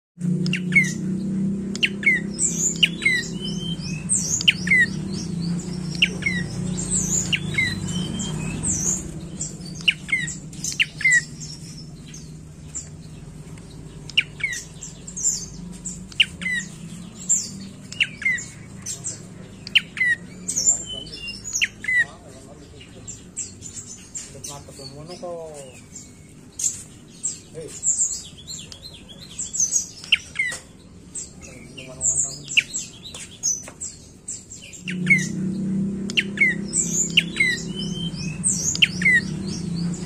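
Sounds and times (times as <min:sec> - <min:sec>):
bird calling high sharp notes: 0:00.2 - 0:12.9, 0:34.5 - 0:39.9.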